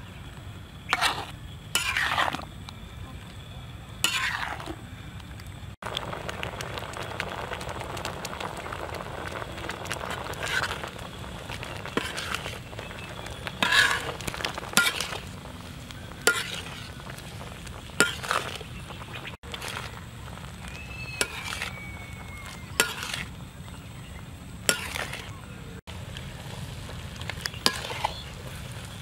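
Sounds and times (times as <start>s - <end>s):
syrup bubbling and sizzling: 0.4s - 2.9s, 3.9s - 29.0s
metal spoon scraping pan: 0.9s - 2.4s, 4.0s - 4.7s, 11.8s - 12.6s, 13.4s - 15.3s, 16.2s - 17.0s, 18.0s - 18.6s, 22.8s - 23.3s, 24.6s - 25.3s, 27.6s - 28.2s.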